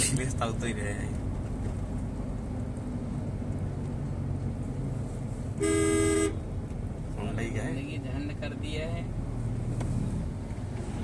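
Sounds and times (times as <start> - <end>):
car engine and tyres hum: 0.0 - 11.0
two-note car horn: 5.6 - 6.4.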